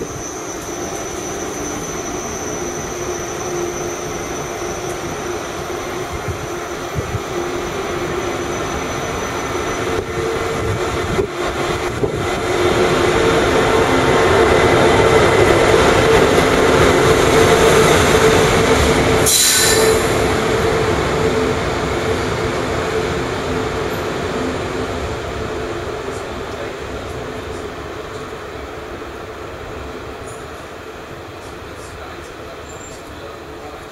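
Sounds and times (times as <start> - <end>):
electric train rumbling and humming: 0.0 - 33.9
brief high hiss: 19.3 - 20.2.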